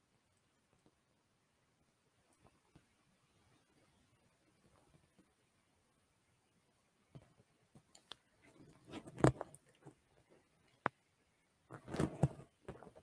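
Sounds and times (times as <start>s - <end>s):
soft clicks: 7.2s - 8.3s.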